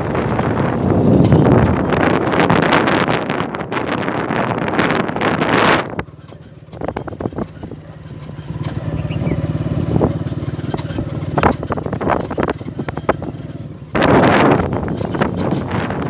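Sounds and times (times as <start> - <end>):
knocks and rattles from bumps: 0.0 - 3.9, 5.8 - 16.0
motorcycle engine running: 0.0 - 16.0.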